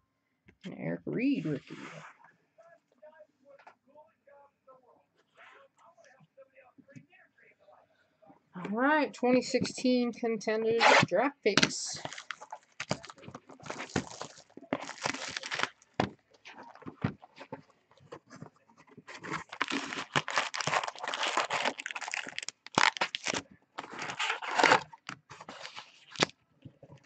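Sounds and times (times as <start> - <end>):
plastic wrap tearing: 12.0 - 16.8, 19.1 - 26.3
foil packs crinkling: 12.0 - 17.6, 19.0 - 26.3.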